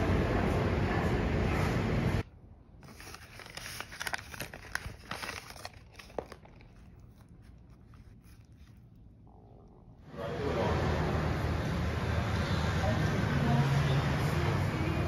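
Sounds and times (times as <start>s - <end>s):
paper bag crinkling: 2.8s - 9.0s.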